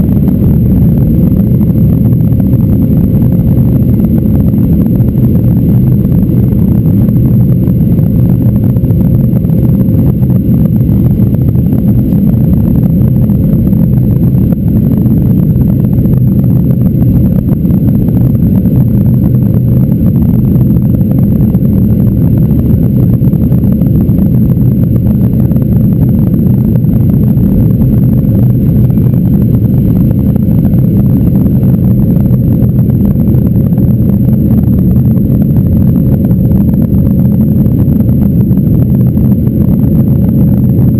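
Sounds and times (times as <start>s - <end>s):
jet engine rumble in cabin: 0.0s - 40.9s.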